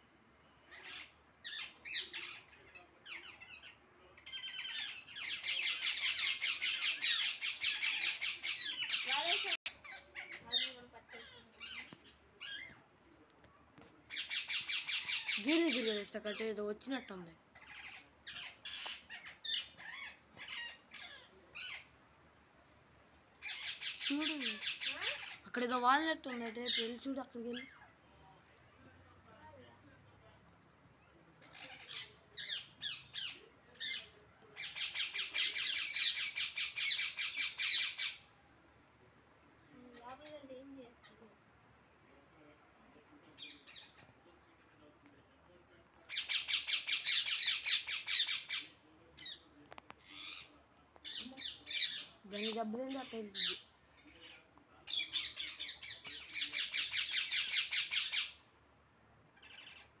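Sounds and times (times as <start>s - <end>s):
parakeet squawking: 4.3s - 12.7s, 14.1s - 16.5s, 23.4s - 27.8s, 31.6s - 38.2s, 46.1s - 49.4s, 54.2s - 58.3s, 59.4s - 59.8s
parakeet screeching: 46.1s - 48.6s.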